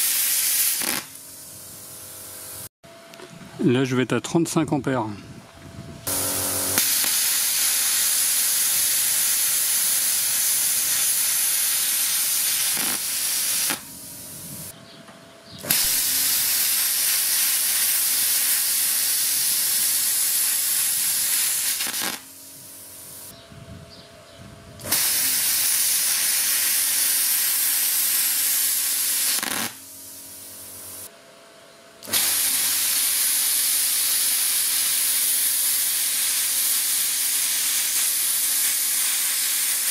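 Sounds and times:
plasma cutter hissing: 0.0s - 2.7s, 6.1s - 14.7s, 15.7s - 23.3s, 24.8s - 31.1s, 32.0s - 39.9s
machine hum: 6.1s - 7.2s.

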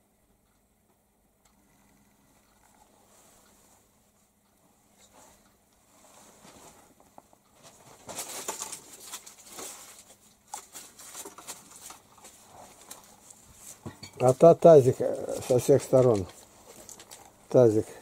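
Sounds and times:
clothing rustling: 4.8s - 17.7s.

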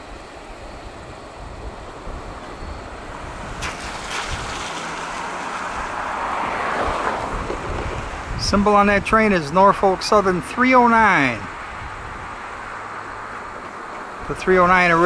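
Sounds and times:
train wheels rumbling on rail: 11.5s - 15.0s.

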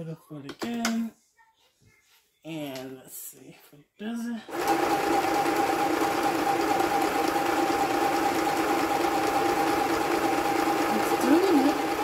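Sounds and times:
sewing machine running: 4.5s - 12.0s.

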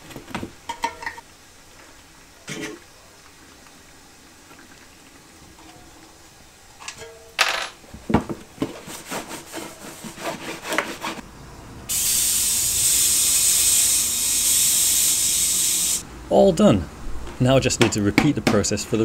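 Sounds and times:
compressed air hissing: 11.9s - 16.1s.

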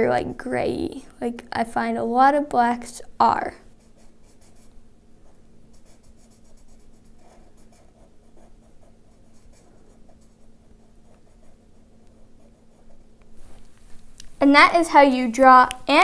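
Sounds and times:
steady low hum: 0.0s - 16.0s
marker scratching on paper: 3.7s - 4.7s, 5.7s - 13.5s.

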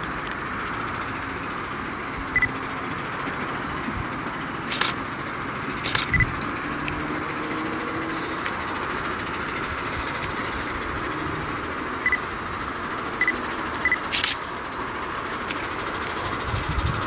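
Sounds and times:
distant steam train running: 0.0s - 17.0s
sharp click: 4.7s - 5.0s, 5.8s - 7.0s, 14.1s - 14.4s.

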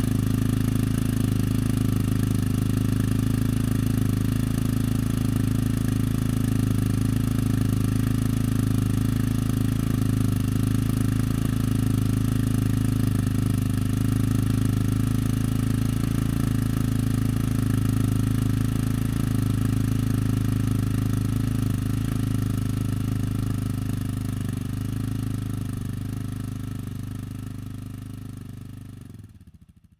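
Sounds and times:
motorcycle engine exhaust note: 17.2s - 28.3s.

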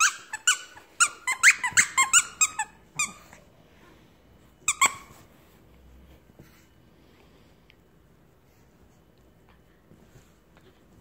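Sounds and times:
dog toy squeaking: 0.0s - 3.4s, 4.7s - 5.1s.

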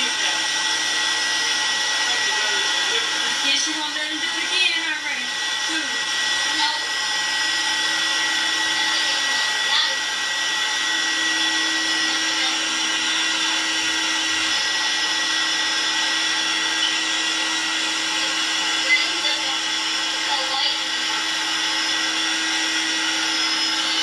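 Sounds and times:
electric hair clippers humming: 0.0s - 24.0s.

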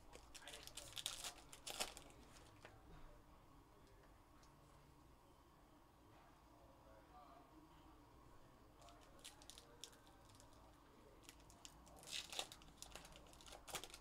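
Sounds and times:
foil wrapper tearing and crinkling: 0.1s - 2.1s, 8.8s - 10.5s, 11.2s - 14.0s.

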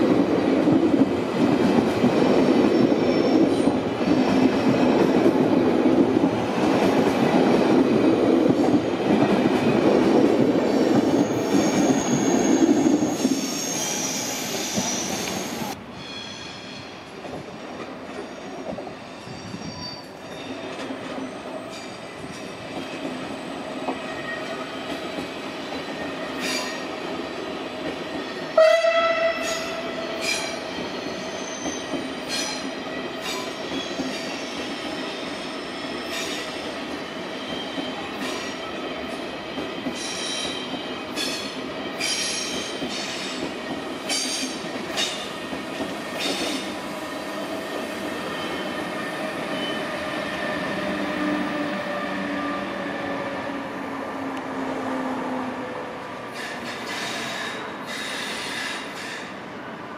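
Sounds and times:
train coaches rumbling past: 0.0s - 59.9s
train wheel squeals: 2.5s - 4.9s, 10.7s - 17.1s, 18.1s - 25.0s, 26.0s - 26.9s, 29.4s - 36.6s, 37.3s - 45.3s, 46.1s - 53.2s, 56.3s - 59.4s
train horn: 28.5s - 30.1s.

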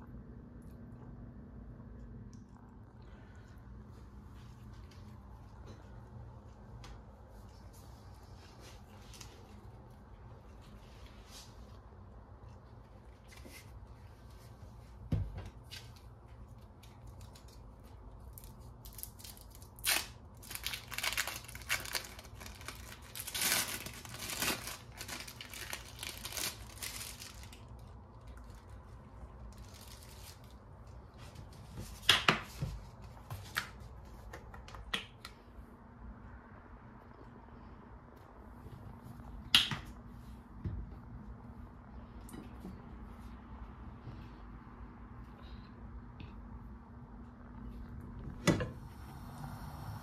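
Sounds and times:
crinkling and tearing: 15.7s - 30.6s.

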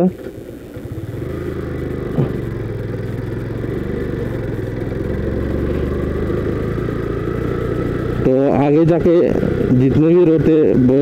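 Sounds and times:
motorcycle engine running: 0.0s - 11.0s
motorcycle rattling over gravel: 0.1s - 11.0s.

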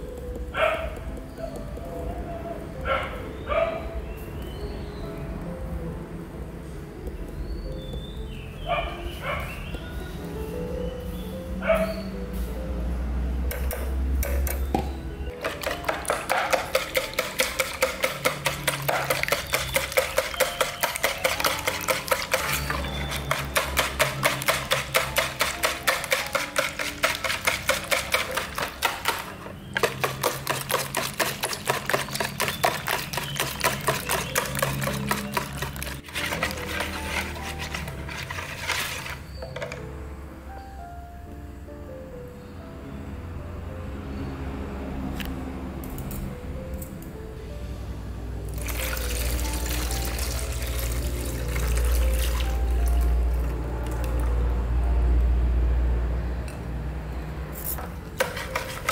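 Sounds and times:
background music: 0.0s - 58.9s
whisk beating eggs in plastic bowl: 15.4s - 39.2s, 48.6s - 54.3s, 58.2s - 58.9s.

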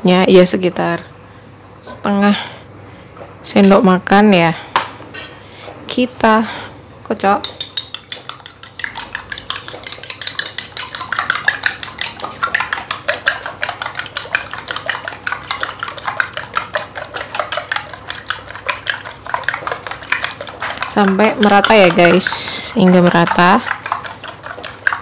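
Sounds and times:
utensil clicking against glass bowl: 7.4s - 25.0s.

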